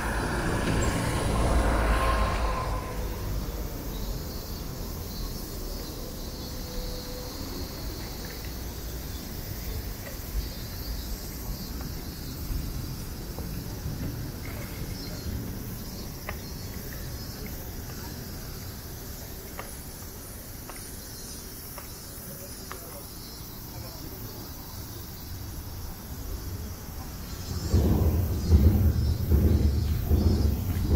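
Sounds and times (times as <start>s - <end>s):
insects shrilling: 0.0s - 13.8s
city traffic rumble: 0.0s - 30.9s.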